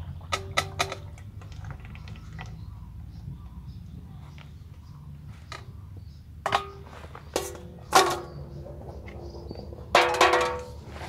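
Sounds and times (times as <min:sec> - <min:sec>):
metal bowls clanking: 0:00.0 - 0:02.6, 0:06.4 - 0:11.0.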